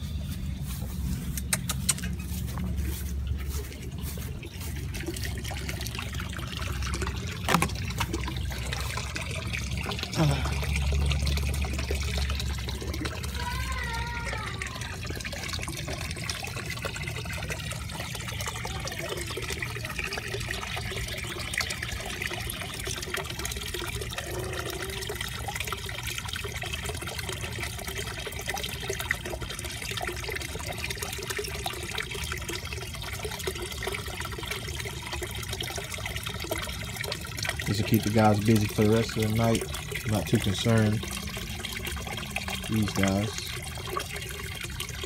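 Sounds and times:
water trickling into a pond: 0.0 - 45.0.

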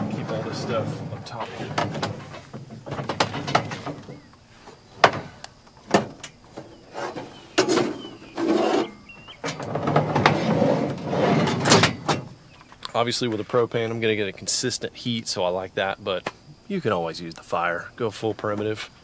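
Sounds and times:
items knocking and clunking: 0.0 - 12.4
rustling and scraping: 0.0 - 13.9.

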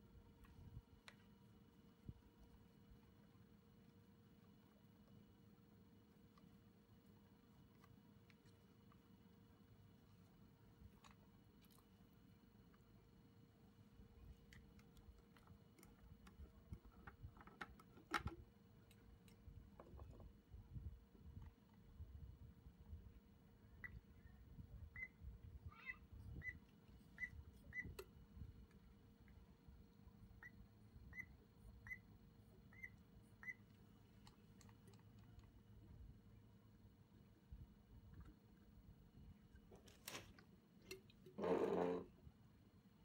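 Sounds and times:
plastic parts clicking and tapping: 14.8 - 20.1
primer bulb squeaks: 27.2 - 28.0, 32.7 - 33.6
faint handling clicks: 33.7 - 35.7.

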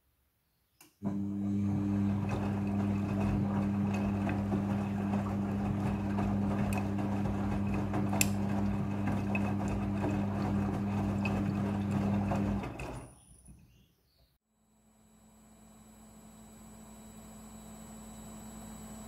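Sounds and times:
washing machine motor hum: 1.0 - 13.2
wet clothes tumbling in drum: 1.8 - 13.0.

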